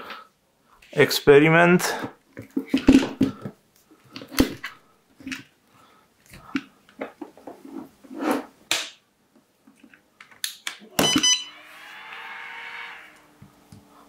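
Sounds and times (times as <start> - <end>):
battery charger beeping: 11.0 - 11.9.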